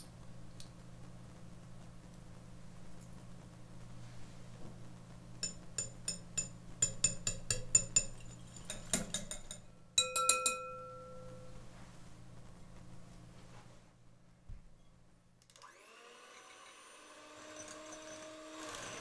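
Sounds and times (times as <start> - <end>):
taps on ringing bowl: 5.4 - 8.2, 9.2 - 11.6
whisk clinking against bowl: 5.4 - 11.5.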